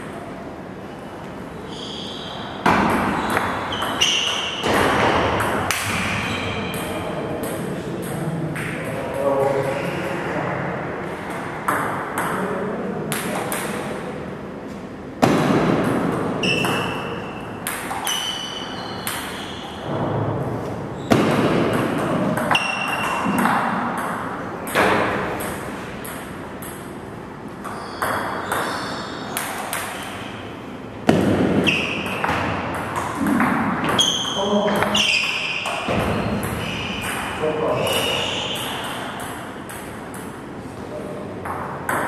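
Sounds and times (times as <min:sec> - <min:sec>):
table tennis ball pings: 0:15.7 - 0:19.9, 0:21.2 - 0:27.0, 0:31.1 - 0:40.4.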